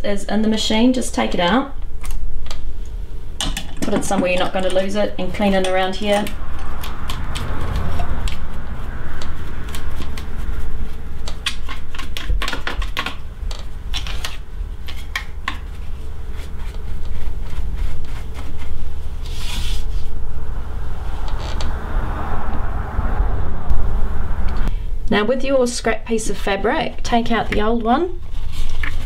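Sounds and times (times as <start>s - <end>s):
steady low hum: 0.0s - 29.0s
brush scrubbing metal parts: 13.6s - 20.2s.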